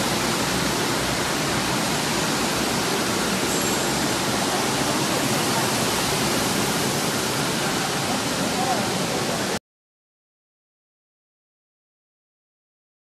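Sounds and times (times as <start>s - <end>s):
machinery rushing noise: 0.0s - 9.5s.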